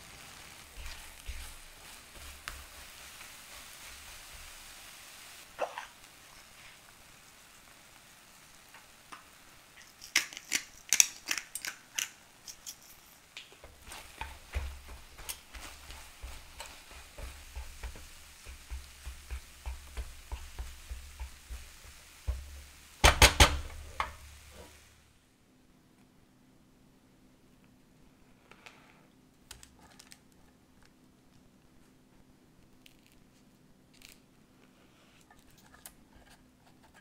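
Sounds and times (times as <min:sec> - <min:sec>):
light sizzling: 0:00.0 - 0:25.3
spatula scraping eggs in a pan: 0:00.3 - 0:05.4, 0:12.5 - 0:22.8
loud clicks and knocks: 0:22.3 - 0:24.2.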